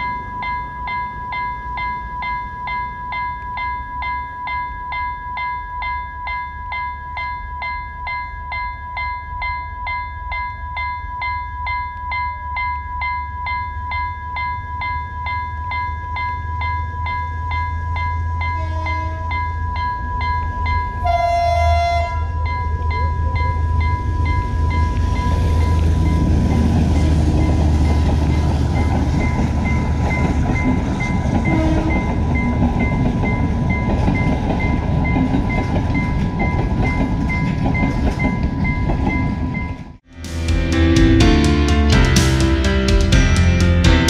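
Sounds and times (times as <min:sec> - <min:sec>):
level crossing warning bell: 0:00.0 - 0:40.0
steady warning tone: 0:00.0 - 0:40.0
train horn blasts: 0:18.4 - 0:19.5, 0:21.0 - 0:22.5, 0:26.8 - 0:27.8, 0:31.4 - 0:32.2
train wheels rumbling on rails: 0:22.0 - 0:40.0.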